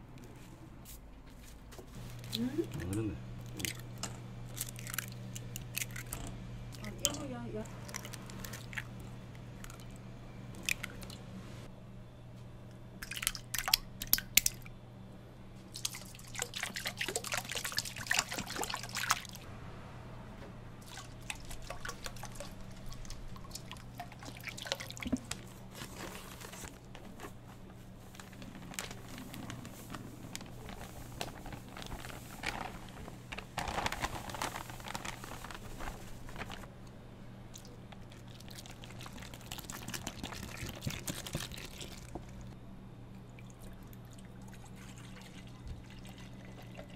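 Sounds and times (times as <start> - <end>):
low steady hum: 0.0 - 46.9
liquid pouring and splashing: 15.8 - 19.5, 20.8 - 25.4, 37.6 - 42.5.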